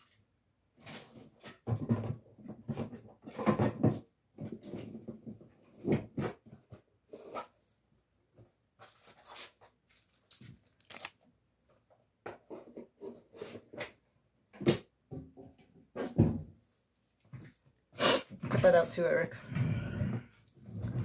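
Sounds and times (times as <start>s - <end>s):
rummaging rustles and knocks: 0.8s - 6.9s.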